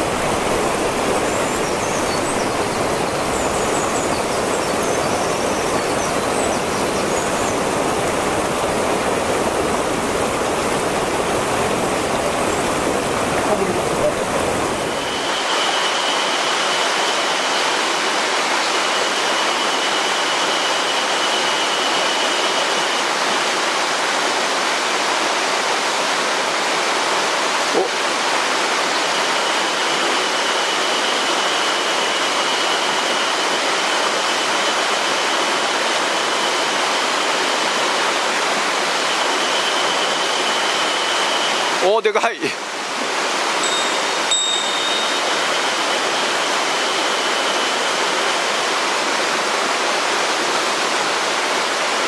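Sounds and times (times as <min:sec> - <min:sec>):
stream rushing over rocks: 0:00.0 - 0:52.0
thin high tone: 0:43.6 - 0:48.2.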